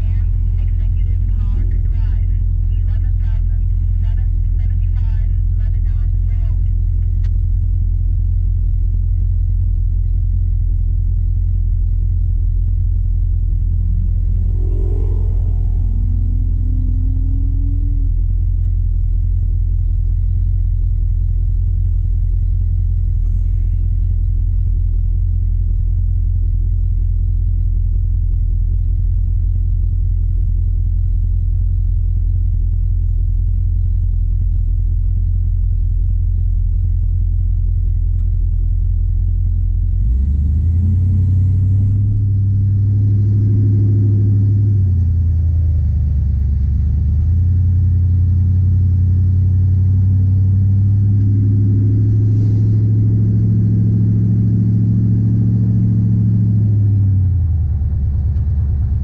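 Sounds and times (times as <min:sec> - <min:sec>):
vehicle engine idling: 0:00.0 - 0:59.0
rising pitched tone: 0:13.1 - 0:19.5.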